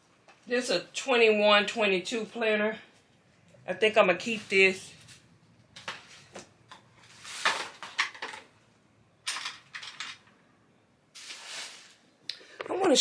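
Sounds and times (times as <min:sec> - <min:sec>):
small items clicking and clattering: 0:09.2 - 0:10.4.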